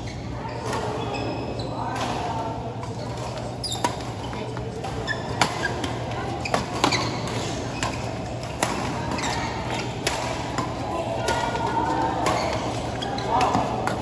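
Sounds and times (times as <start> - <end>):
background hum and murmur: 0.0 - 14.0
rackets hitting shuttlecock: 4.8 - 14.0.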